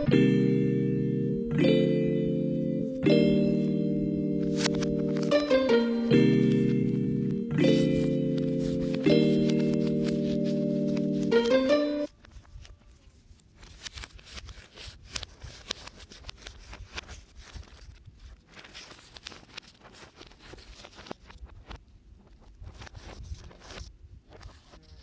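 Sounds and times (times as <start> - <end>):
paper rustling: 4.4 - 25.0.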